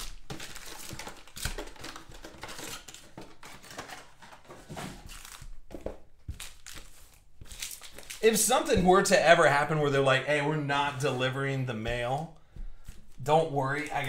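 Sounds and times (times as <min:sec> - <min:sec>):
card pack wrappers crinkling: 0:00.0 - 0:08.7.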